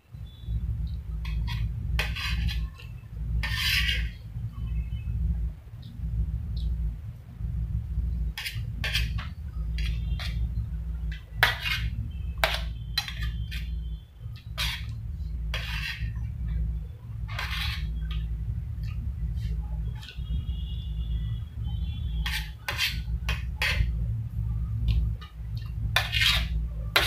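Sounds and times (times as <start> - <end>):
steady low hum: 0.0 - 27.0
spoon scraping on metal plate: 1.2 - 4.2, 8.3 - 16.6, 17.2 - 20.2, 22.0 - 24.0, 25.6 - 27.0.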